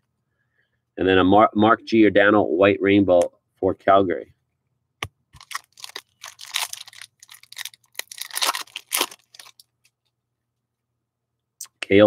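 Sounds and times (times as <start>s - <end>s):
trading cards rustling and snapping: 5.4s - 9.7s.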